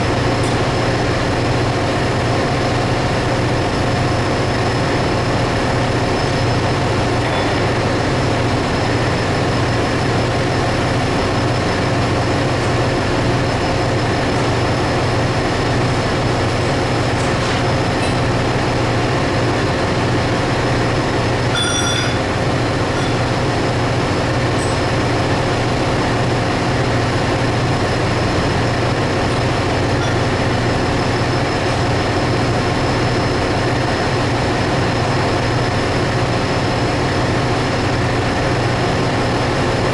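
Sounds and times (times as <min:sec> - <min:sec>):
engine room machinery drone: 0:00.0 - 0:39.9
short ringing clink: 0:21.5 - 0:22.3.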